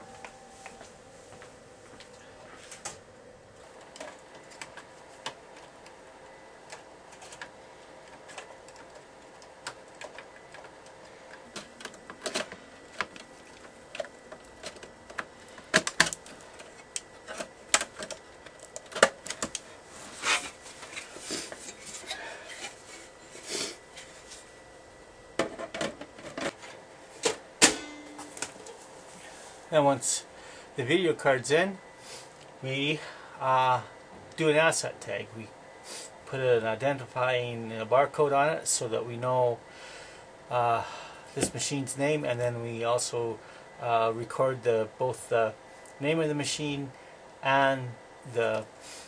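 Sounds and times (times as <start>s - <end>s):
computer side cover snapping on: 27.2s - 28.7s.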